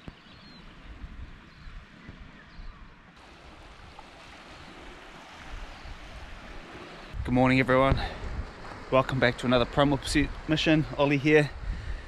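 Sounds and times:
wind rumbling on microphone: 0.0 - 12.0
small waves washing: 3.2 - 12.0.

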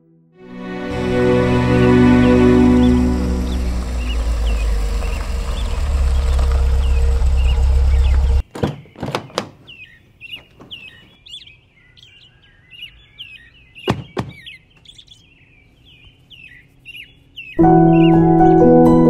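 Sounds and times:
loud car engine: 0.6 - 8.4
small birds chirping: 1.0 - 18.6
car door thunks: 13.8 - 14.5.

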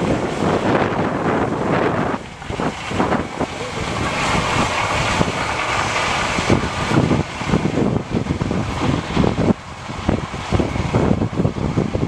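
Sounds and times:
distant combine harvesters running: 0.0 - 12.0
wind buffeting microphone: 0.0 - 12.0.

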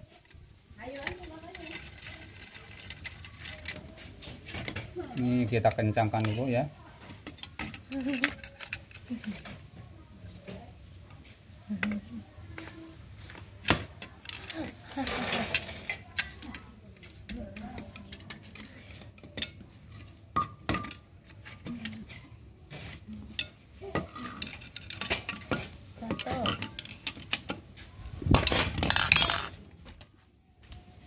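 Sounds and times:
metal clattering: 28.7 - 29.9.

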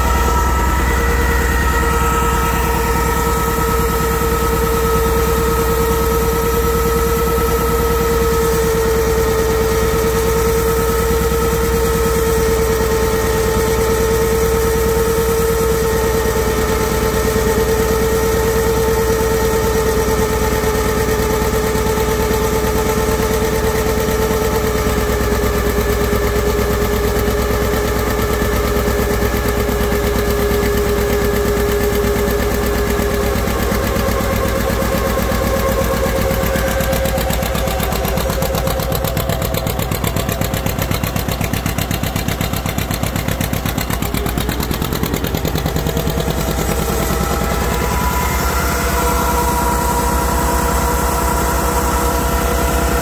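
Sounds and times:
tractor engine running: 0.0 - 53.0.

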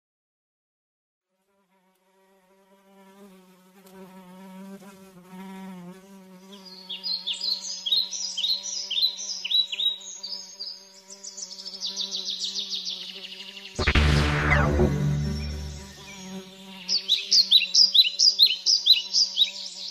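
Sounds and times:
housefly buzzing: 1.3 - 19.9
sudden loud sound: 13.8 - 16.5
high falling chirps: 13.8 - 16.8.

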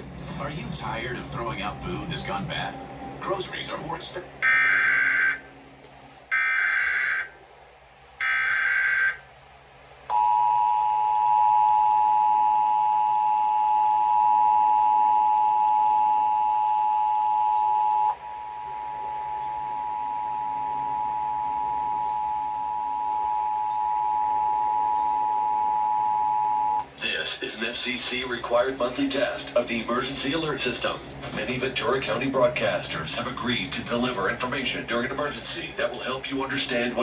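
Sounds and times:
screechy data bursts: 3.2 - 5.5, 8.2 - 9.3, 15.2 - 26.8.

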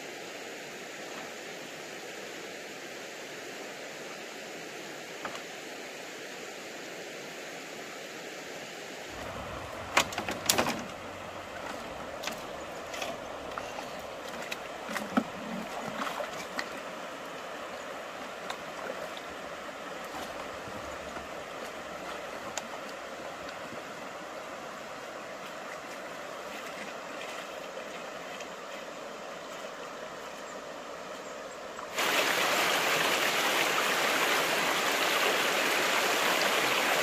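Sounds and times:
stream flowing: 0.0 - 37.0
knocks and splashes at water: 9.2 - 16.8.

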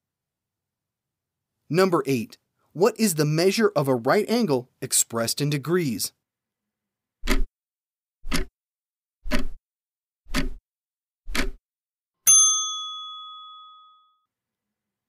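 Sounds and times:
clock ticks: 7.2 - 7.5, 8.2 - 8.5, 9.3 - 9.6, 10.3 - 10.6, 11.3 - 11.6
bell ding: 12.3 - 14.3.

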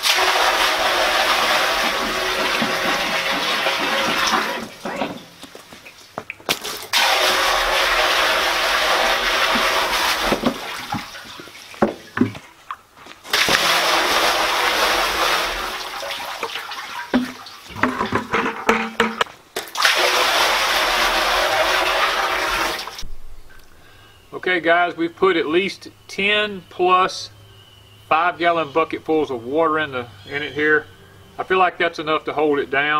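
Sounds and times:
water poured splashing into tank: 0.0 - 5.2, 6.5 - 12.2, 13.3 - 23.0
bucket knocks: 0.6 - 5.4, 9.0 - 12.5, 16.4 - 19.3.

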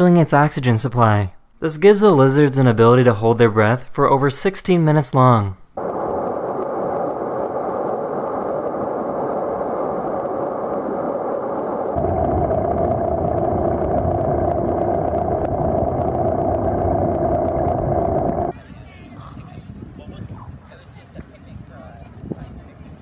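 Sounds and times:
faint steady hum: 5.6 - 18.5
rushing ambient noise: 5.8 - 18.5.

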